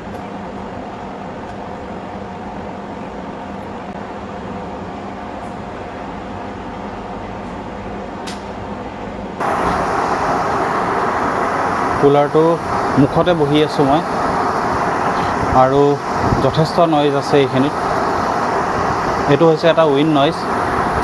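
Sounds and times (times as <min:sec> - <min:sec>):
air cooler fan rushing: 0:00.0 - 0:21.0
low hum: 0:09.4 - 0:21.0
wind blowing on microphone: 0:09.4 - 0:21.0.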